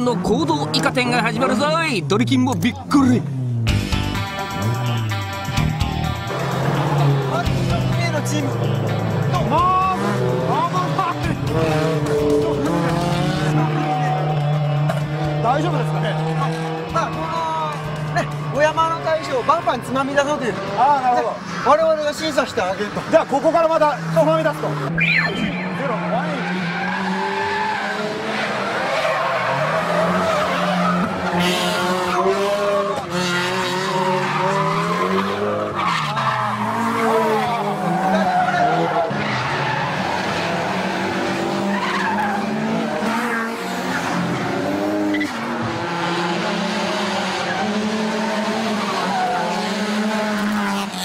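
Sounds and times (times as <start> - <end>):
car engines revving: 0.0 - 51.0
tyres skidding and squealing: 4.3 - 51.0.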